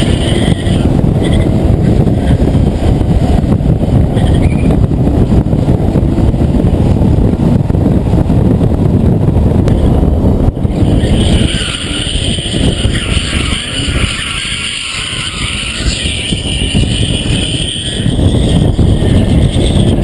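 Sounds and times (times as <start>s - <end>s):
tyres squealing: 0.0s - 1.6s, 10.7s - 20.0s
wind and road noise: 0.0s - 20.0s.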